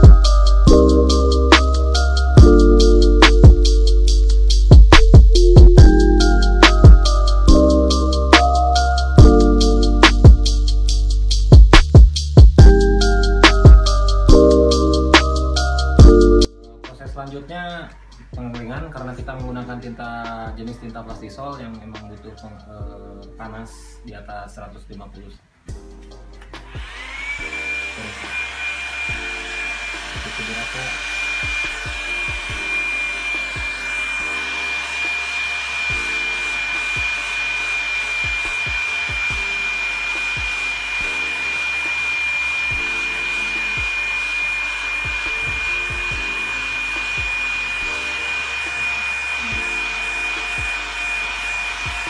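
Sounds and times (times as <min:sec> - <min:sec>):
heat gun motor whine: 0:26.6 - 0:52.0.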